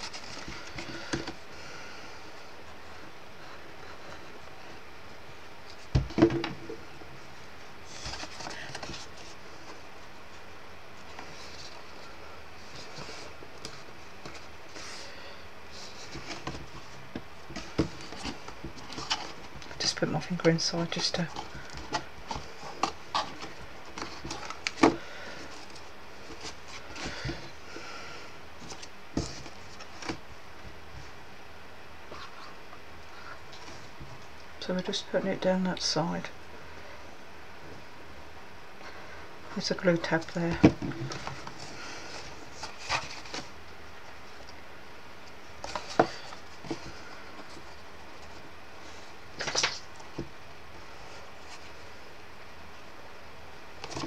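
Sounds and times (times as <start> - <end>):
steady low hiss: 0.0 - 54.0
card clicks and rustles: 49.3 - 50.2.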